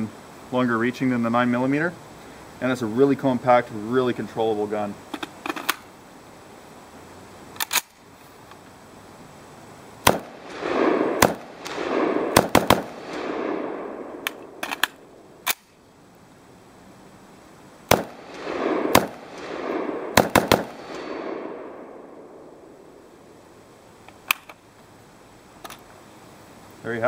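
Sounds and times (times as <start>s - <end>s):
rifle shots with rolling echo: 10.0s - 15.7s, 17.9s - 23.6s.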